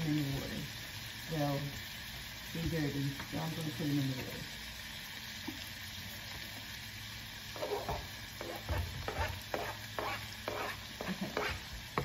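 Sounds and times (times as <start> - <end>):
vegetables sizzling in a pan: 0.0 - 12.0
knocks and scrapes on board: 7.6 - 10.8.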